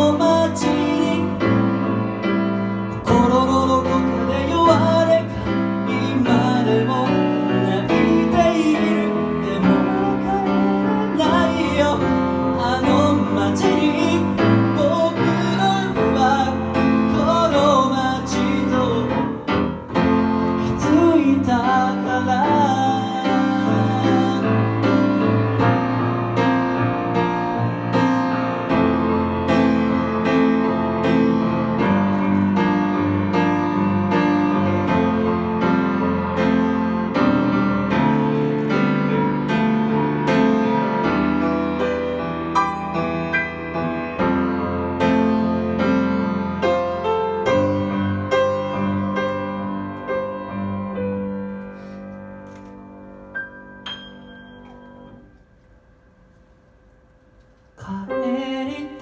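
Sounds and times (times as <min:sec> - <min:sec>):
man singing: 0:00.0 - 0:01.9, 0:02.9 - 0:19.9, 0:20.6 - 0:25.5, 0:57.8 - 0:59.0
grand piano: 0:00.0 - 0:59.0.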